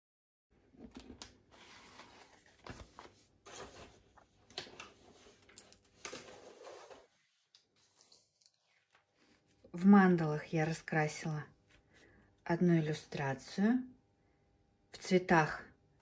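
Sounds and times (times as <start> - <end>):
paper rustling: 0.8 - 9.7.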